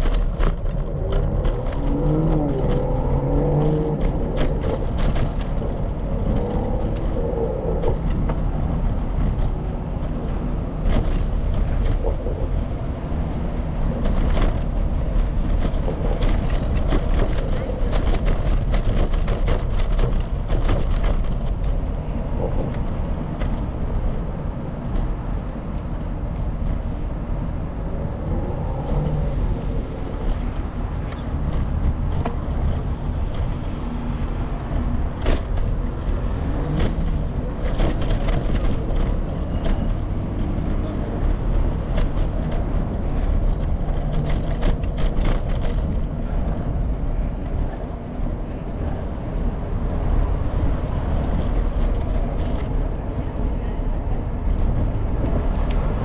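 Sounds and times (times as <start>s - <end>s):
vehicle traffic: 0.0s - 56.0s
wind on microphone: 0.0s - 56.0s
bicycle clicks and rattles: 13.9s - 21.8s.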